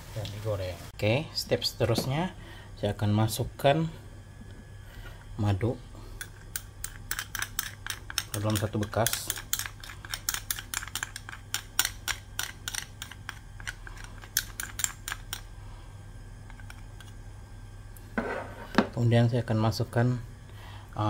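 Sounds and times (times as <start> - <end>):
spoon scraping ceramic bowl: 18.2 - 18.8.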